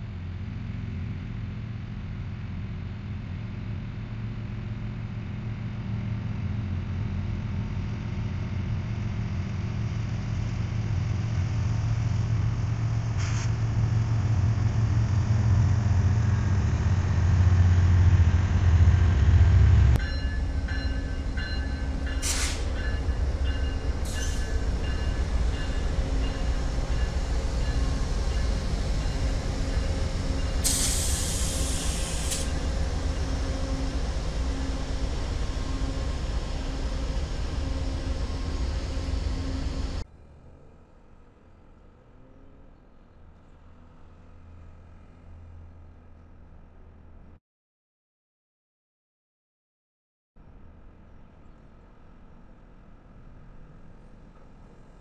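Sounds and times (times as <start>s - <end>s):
diesel locomotive rumble: 0.0s - 41.3s
diesel locomotive idling: 0.1s - 40.1s.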